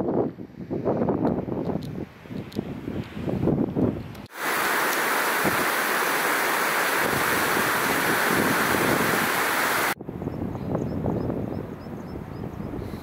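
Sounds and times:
wind buffeting microphone: 0:00.0 - 0:13.0
stream cascading over rocks: 0:04.3 - 0:10.0.

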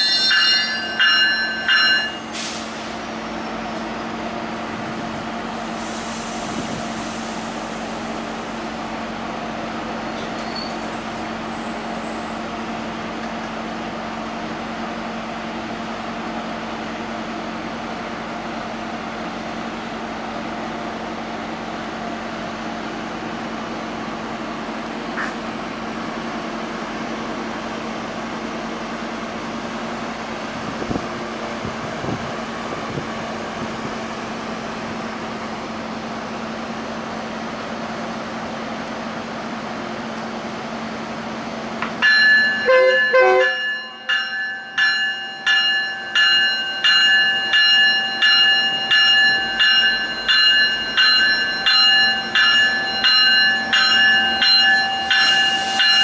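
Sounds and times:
railway bell ringing: 0:00.0 - 0:04.6, 0:40.8 - 0:56.0
train humming at platform: 0:00.0 - 0:56.0.

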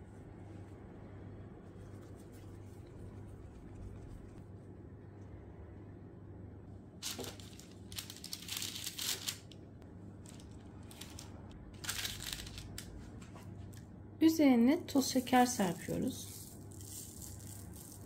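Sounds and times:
faint low hum: 0:00.0 - 0:18.0
parchment paper crinkling: 0:07.0 - 0:09.6, 0:10.2 - 0:13.4.

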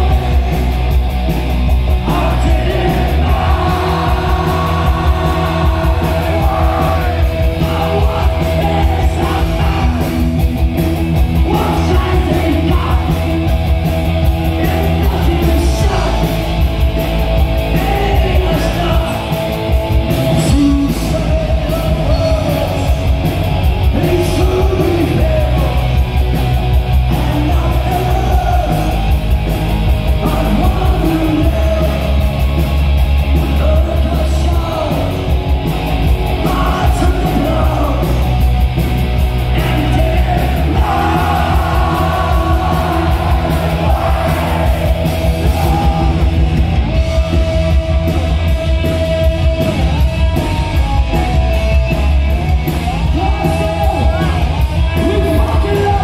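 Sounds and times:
bass guitar: 0:00.0 - 0:56.0
drums: 0:00.0 - 0:56.0
electric guitar: 0:00.0 - 0:56.0
man singing: 0:02.0 - 0:10.3, 0:11.4 - 0:13.3, 0:14.4 - 0:16.5, 0:17.7 - 0:19.6, 0:20.2 - 0:23.2, 0:23.8 - 0:26.0, 0:27.1 - 0:29.0, 0:30.2 - 0:32.2, 0:33.4 - 0:35.2, 0:36.4 - 0:38.3, 0:39.5 - 0:46.6, 0:53.0 - 0:56.0.

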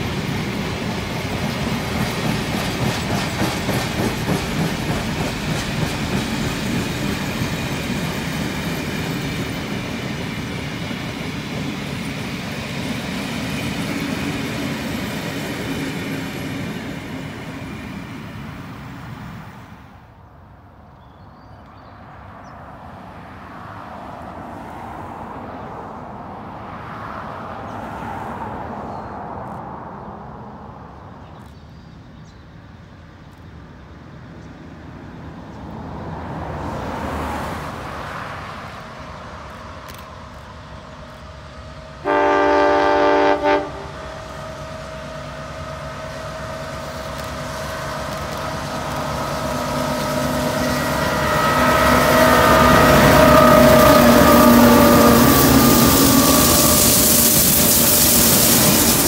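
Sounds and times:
train rumble: 0:00.0 - 0:20.6, 0:27.5 - 0:59.0
locomotive horn: 0:42.0 - 0:44.2, 0:50.2 - 0:57.7
rushing noise: 0:42.6 - 0:59.0.

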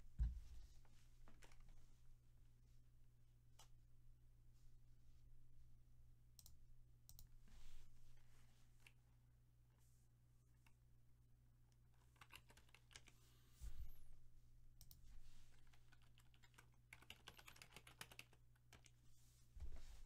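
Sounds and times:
low electrical hum: 0:00.0 - 0:20.0
typing on computer keyboard: 0:12.1 - 0:13.2, 0:14.8 - 0:19.0.

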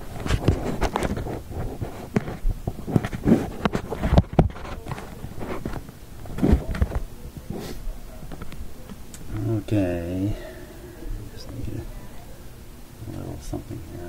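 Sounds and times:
hands handling objects: 0:00.0 - 0:09.5.

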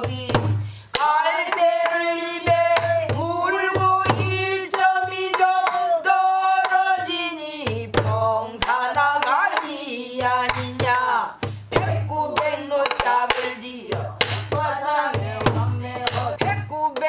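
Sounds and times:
woman singing: 0:00.0 - 0:17.0.

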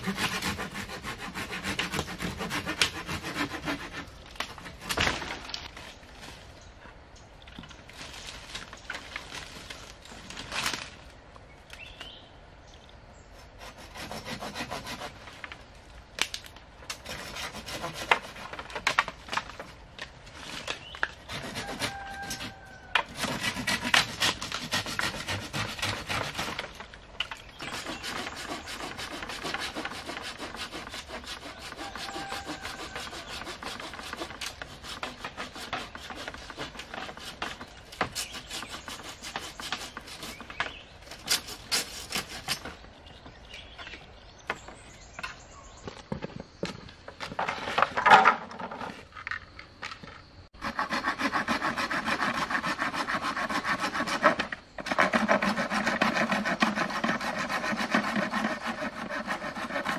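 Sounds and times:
saw cutting bamboo: 0:00.0 - 0:05.2, 0:13.3 - 0:15.4, 0:16.9 - 0:19.7, 0:21.1 - 0:26.8, 0:27.5 - 0:42.8, 0:50.6 - 0:59.9
bamboo canes knocking: 0:46.1 - 0:50.0.

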